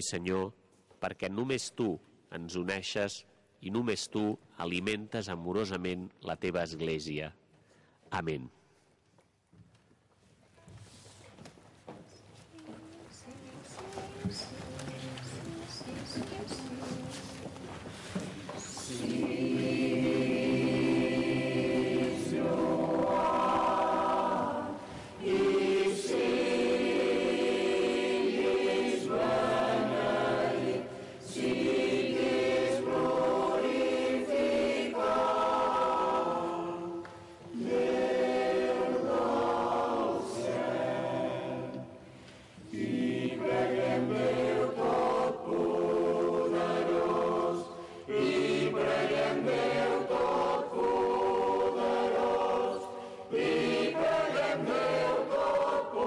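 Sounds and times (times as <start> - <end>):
choir singing a hymn: 18.6 - 56.0.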